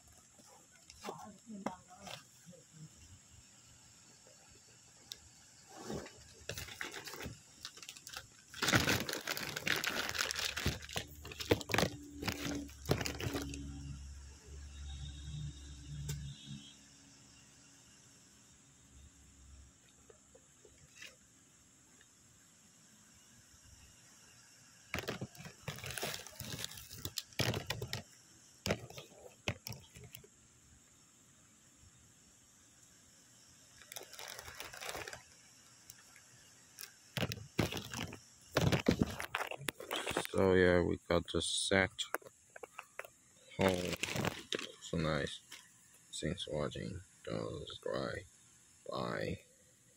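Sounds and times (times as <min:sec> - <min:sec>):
faint low hum: 0:00.0 - 0:49.9
plastic crinkling and rustling: 0:05.8 - 0:13.7, 0:24.9 - 0:30.3, 0:33.8 - 0:36.0, 0:36.8 - 0:40.4, 0:42.5 - 0:44.8.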